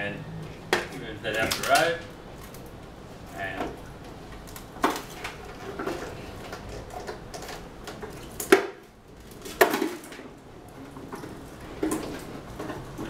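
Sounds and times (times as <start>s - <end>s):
plastic casing knocks and clatter: 4.8s - 13.0s.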